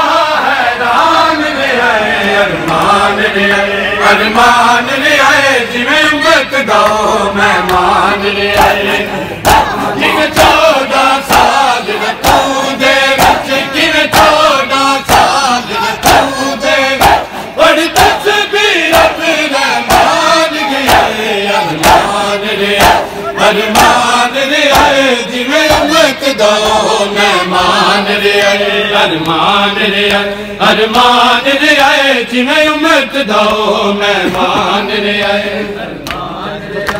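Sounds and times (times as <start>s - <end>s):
men chanting: 0.0s - 36.9s
hands slapping chests: 9.4s - 9.8s, 11.3s - 11.6s, 12.2s - 14.4s, 15.1s - 15.4s, 21.8s - 22.2s, 23.7s - 24.1s, 24.7s - 25.0s.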